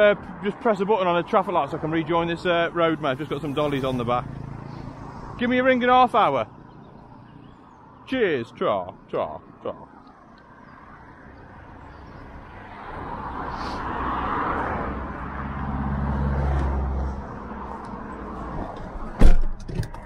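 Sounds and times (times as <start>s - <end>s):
background road traffic: 0.0s - 20.0s
vehicle passing by: 1.9s - 7.9s, 11.2s - 19.2s.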